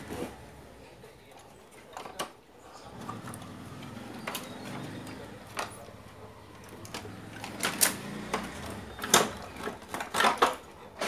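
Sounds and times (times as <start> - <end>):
plastic clicks and knocks: 6.6 - 11.0.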